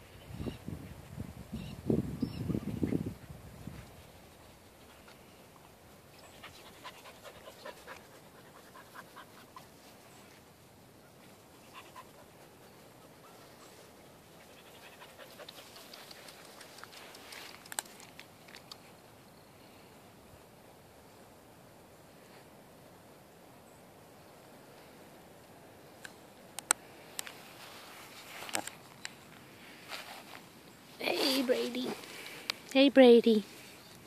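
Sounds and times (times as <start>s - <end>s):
puppies panting: 6.2s - 9.9s, 11.6s - 17.2s
faint rustling: 26.8s - 34.0s.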